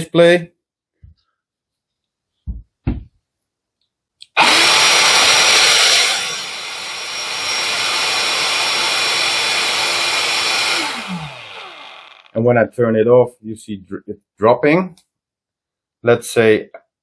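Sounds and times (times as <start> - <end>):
power tool running with whine: 4.4 - 12.4.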